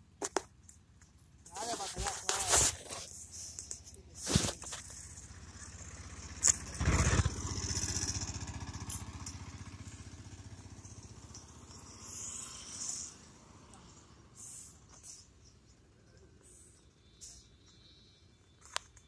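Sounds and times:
motorcycle engine passing: 4.7s - 15.9s.

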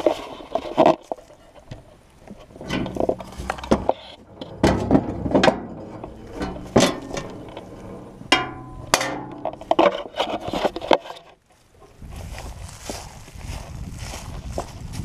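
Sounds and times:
hard objects knocking and clunking: 0.0s - 11.3s
low steady hum: 0.0s - 12.0s.

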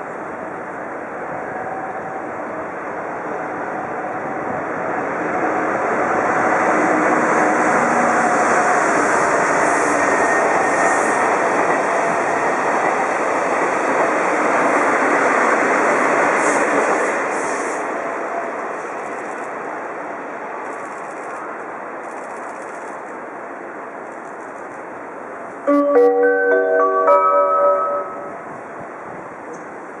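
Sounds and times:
diesel locomotive engine passing: 0.0s - 20.3s.

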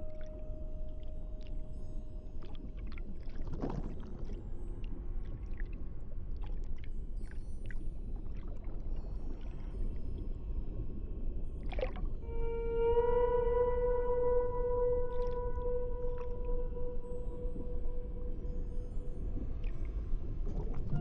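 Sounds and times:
muffled underwater rumble: 0.0s - 21.0s
water swishes: 2.3s - 12.3s, 15.0s - 21.0s.

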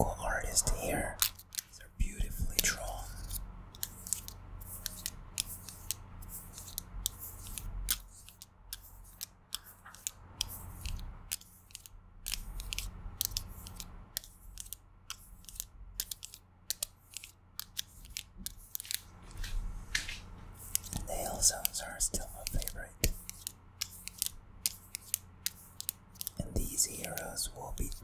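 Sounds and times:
fingernails clicking on plastic: 20.7s - 28.0s.

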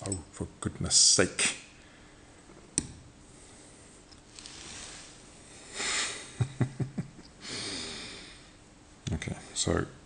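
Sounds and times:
breath-like rush of noise: 3.3s - 6.4s.

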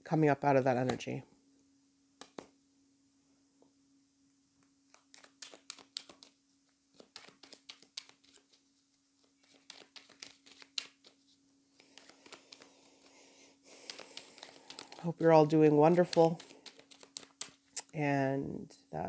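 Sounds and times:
faint low hum: 0.0s - 19.0s
playing cards shuffling: 0.7s - 1.1s, 2.2s - 2.5s, 4.8s - 18.0s.

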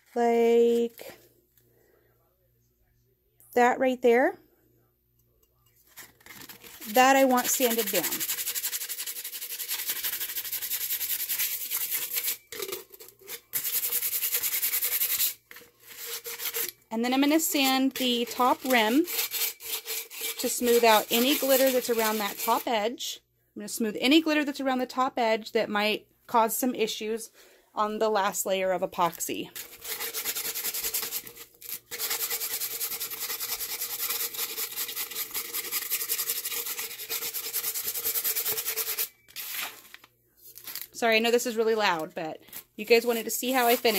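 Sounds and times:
sandpaper rubbing: 6.8s - 12.4s, 13.6s - 16.7s, 18.3s - 22.7s, 29.6s - 39.7s, 42.9s - 43.9s.

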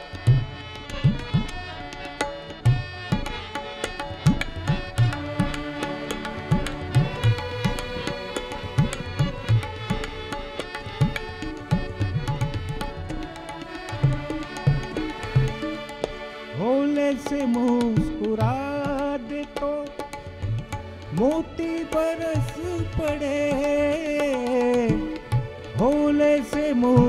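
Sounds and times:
bowed sarangi melody: 0.0s - 27.0s
harmonium: 0.0s - 27.0s
tabla playing a rhythm: 0.0s - 27.0s.

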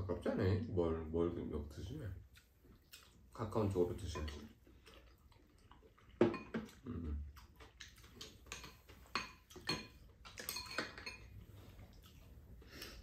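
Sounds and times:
utensils clinking against bowls: 8.2s - 11.4s.

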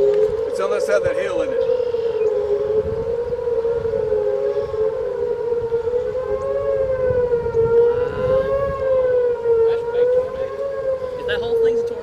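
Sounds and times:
wailing warning siren: 0.0s - 12.0s.

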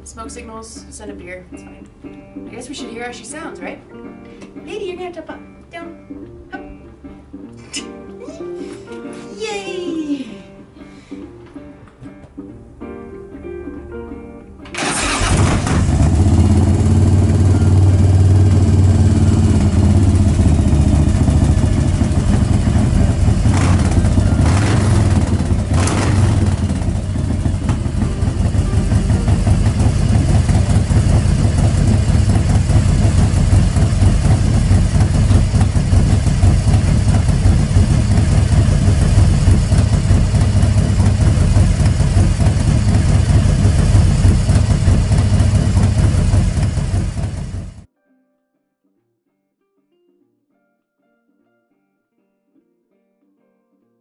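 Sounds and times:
motorcycle engine revving and idling: 14.8s - 47.9s.

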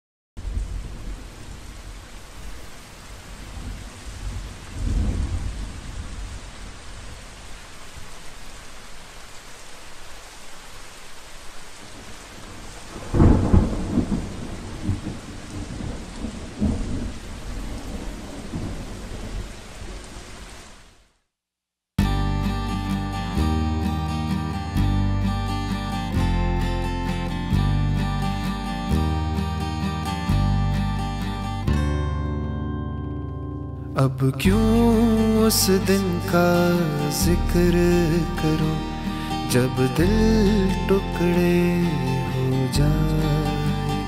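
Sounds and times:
steady rain: 0.4s - 21.3s, 22.6s - 31.8s, 34.0s - 44.0s
thunder rumbling: 3.2s - 7.5s, 12.0s - 20.4s.

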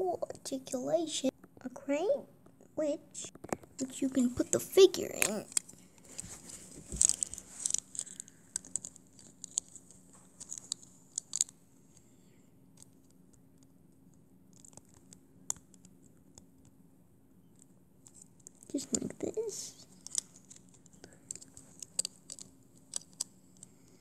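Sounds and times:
small plastic clicks and scrapes: 3.3s - 12.0s, 19.9s - 24.0s.

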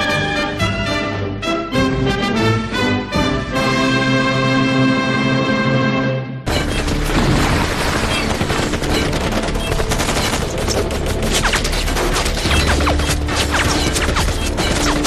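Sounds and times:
rifle and machine-gun fire: 7.0s - 15.0s.

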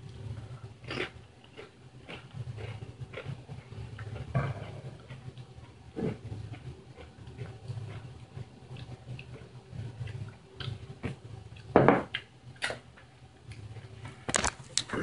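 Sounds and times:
wet chewing: 0.8s - 12.8s.

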